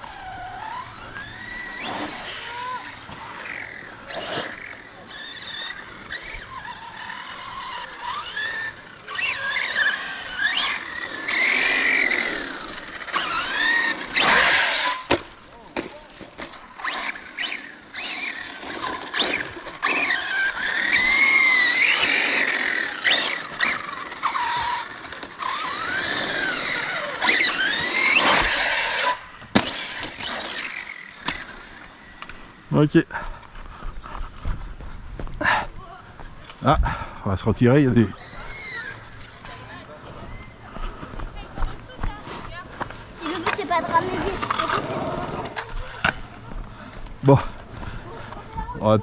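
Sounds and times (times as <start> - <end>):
electric motor whining: 0.0 - 15.2, 16.4 - 32.6.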